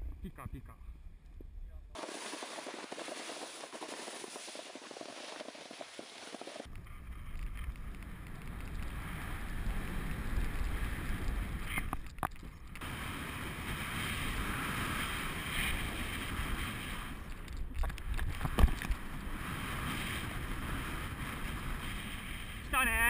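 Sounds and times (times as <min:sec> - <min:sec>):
snowboard scraping over snow: 0:02.0 - 0:07.2, 0:08.4 - 0:11.9, 0:12.8 - 0:17.4, 0:18.3 - 0:23.0
wind rumbling on microphone: 0:02.3 - 0:23.0.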